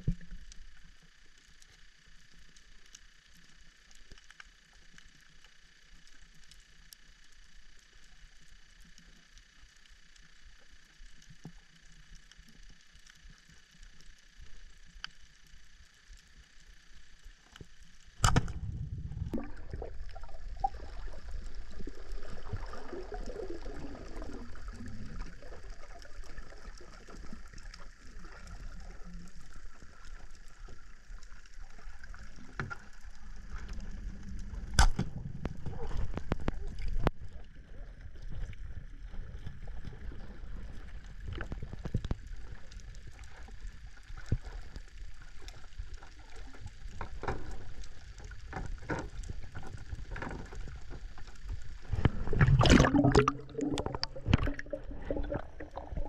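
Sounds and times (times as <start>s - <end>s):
water gurgling and sloshing: 10.6s - 56.0s
speargun firing crack: 18.2s - 18.6s.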